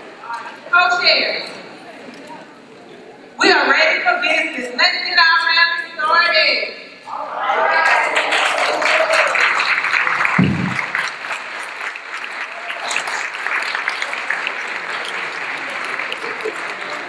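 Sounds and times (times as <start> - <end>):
large audience applauding: 7.7 - 17.0
low thump: 10.3 - 11.0.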